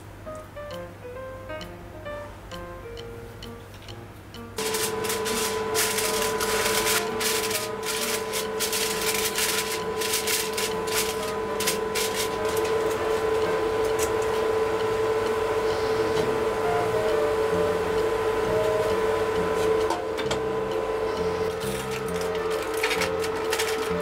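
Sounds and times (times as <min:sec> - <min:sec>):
steady hum: 0:00.0 - 0:24.0
aluminium foil crinkling: 0:04.6 - 0:14.4, 0:21.4 - 0:24.0.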